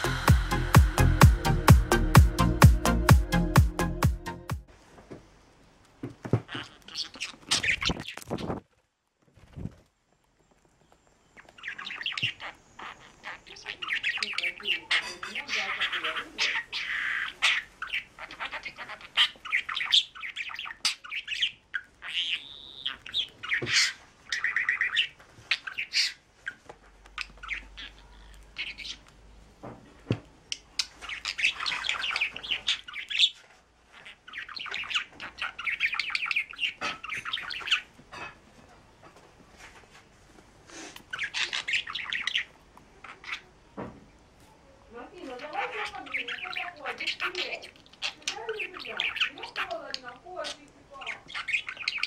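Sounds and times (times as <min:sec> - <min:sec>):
budgerigar chattering and warbling: 0:06.4 - 0:08.6, 0:11.6 - 0:26.6, 0:27.2 - 0:29.0, 0:30.6 - 0:38.3, 0:41.1 - 0:43.6, 0:45.1 - 0:52.0.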